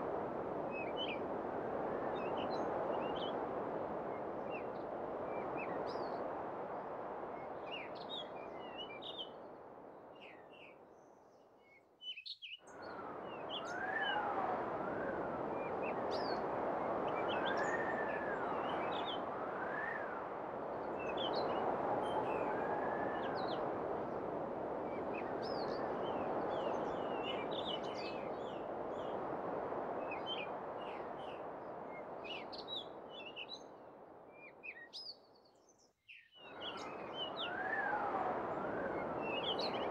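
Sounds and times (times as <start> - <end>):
wind buffeting microphone: 36.5 - 39.9.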